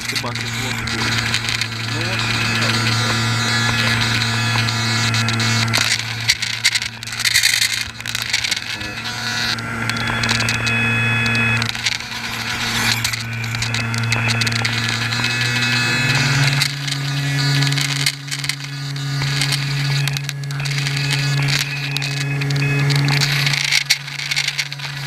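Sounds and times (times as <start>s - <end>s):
model air boat motor whining: 0.0s - 25.0s.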